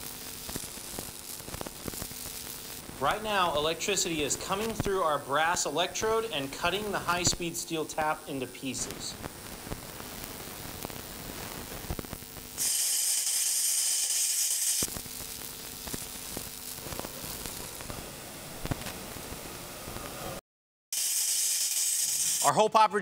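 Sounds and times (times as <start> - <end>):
crackling sizzling sparks: 0.0 - 23.0
loud hiss: 11.2 - 18.0, 21.0 - 22.5.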